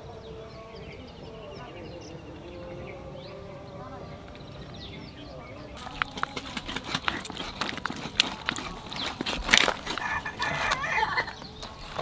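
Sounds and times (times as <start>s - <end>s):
chicken clucking: 1.5s - 12.0s.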